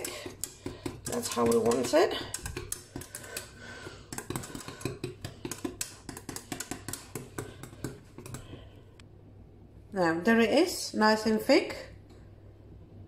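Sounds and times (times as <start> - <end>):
whisk clicking against pan: 0.0 - 8.7.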